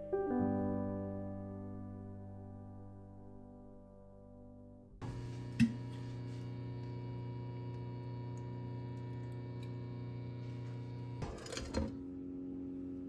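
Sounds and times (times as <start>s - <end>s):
induction cooktop humming: 5.0s - 13.0s.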